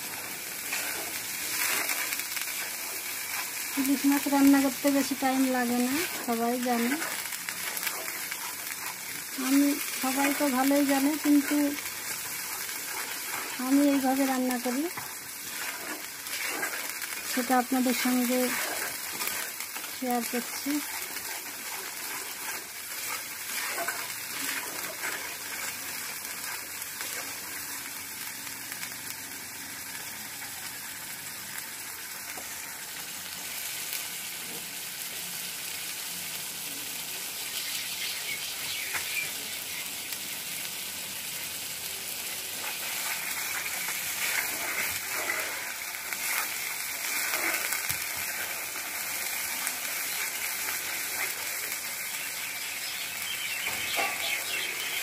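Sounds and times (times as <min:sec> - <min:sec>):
paste sizzling in oil: 0:00.0 - 0:55.0
spoon scraping a pan: 0:00.6 - 0:03.7, 0:04.5 - 0:27.3, 0:53.6 - 0:55.0.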